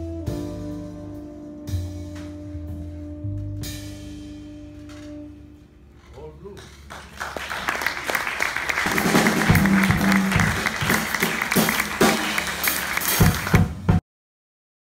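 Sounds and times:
audience applauding: 0:06.8 - 0:13.8
heavy claps close to microphone: 0:06.9 - 0:13.7.

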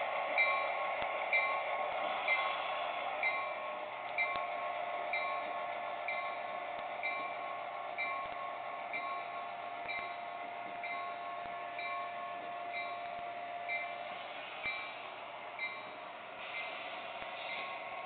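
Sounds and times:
model train humming: 0:00.0 - 0:18.0
locomotive bell ringing: 0:00.3 - 0:02.6, 0:03.2 - 0:18.0.

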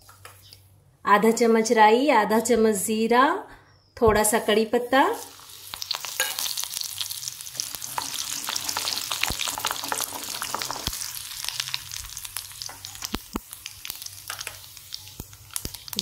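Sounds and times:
seeds sizzling in hot oil: 0:04.4 - 0:16.0.

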